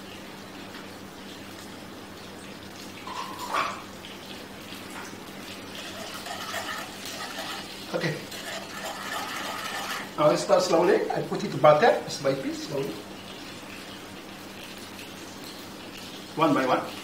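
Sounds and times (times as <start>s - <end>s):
cream bubbling in a frying pan: 0.0s - 17.0s
utensil scraping a pan: 5.8s - 10.2s.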